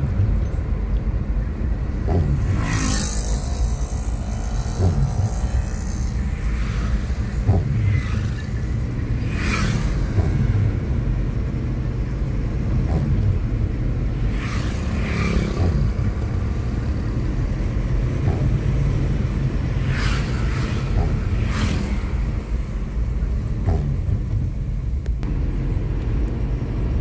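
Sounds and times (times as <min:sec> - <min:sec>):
engine and tyre rumble: 0:00.0 - 0:27.0
windshield wipers brushing glass: 0:02.0 - 0:02.5, 0:03.2 - 0:08.9, 0:12.8 - 0:13.7, 0:15.4 - 0:19.3, 0:20.7 - 0:21.4.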